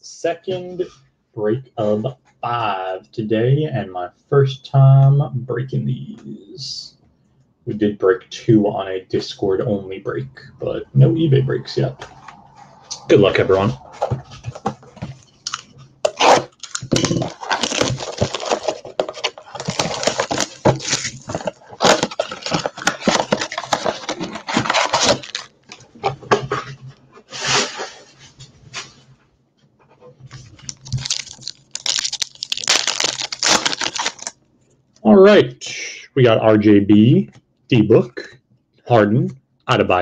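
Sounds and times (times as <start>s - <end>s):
cardboard rustling: 13.0s - 29.0s, 30.2s - 34.3s
wrapper ripping and crinkling: 15.4s - 25.9s, 30.5s - 34.4s.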